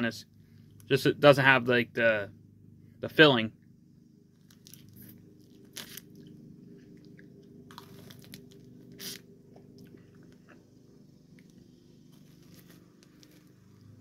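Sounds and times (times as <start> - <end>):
crunching frozen ice pop: 4.3 - 10.6.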